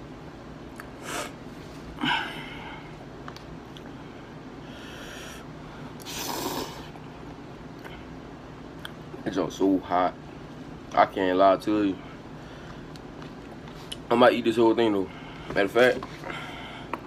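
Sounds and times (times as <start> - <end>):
person sniffing: 1.0 - 1.4, 6.0 - 6.9
slurping noodles: 6.0 - 6.9.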